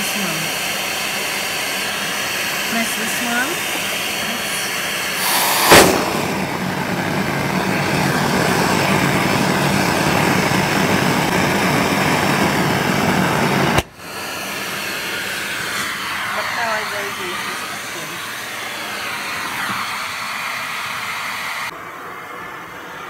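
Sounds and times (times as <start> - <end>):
vacuum suction rush with hum: 0.5 - 21.8
loud whoosh of air: 5.1 - 13.2.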